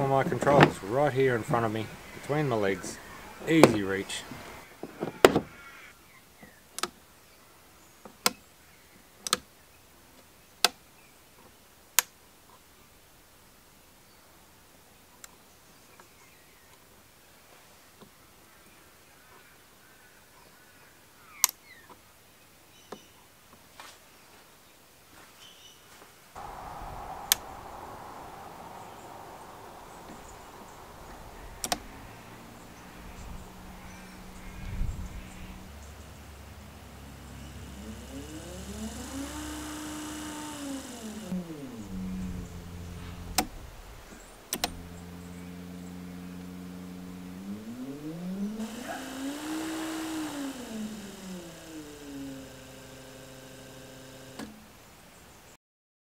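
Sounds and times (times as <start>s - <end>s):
faint steady hum: 26.4s - 55.5s.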